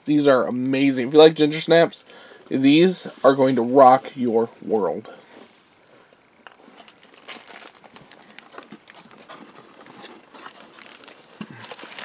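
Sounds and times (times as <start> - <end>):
crunchy biscuits being chewed: 6.5 - 12.0.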